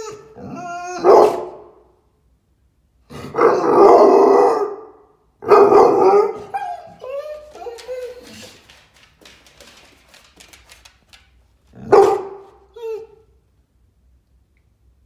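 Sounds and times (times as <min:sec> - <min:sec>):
dog whining: 0:00.0 - 0:01.6, 0:05.9 - 0:08.6, 0:11.8 - 0:13.4
dog howling barks: 0:00.0 - 0:01.8, 0:03.3 - 0:08.3, 0:11.8 - 0:13.2
dog barking: 0:01.0 - 0:01.8, 0:03.3 - 0:06.9, 0:11.8 - 0:12.6.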